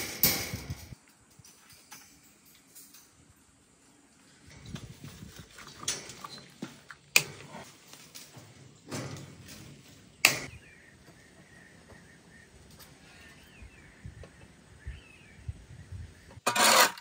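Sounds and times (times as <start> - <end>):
wire scraping against steel bars: 0.0 - 3.4, 16.4 - 17.0.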